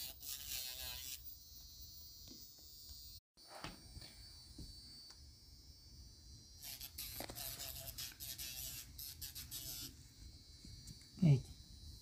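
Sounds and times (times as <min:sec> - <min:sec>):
electric nail file whine: 0:00.0 - 0:03.1, 0:04.6 - 0:10.0.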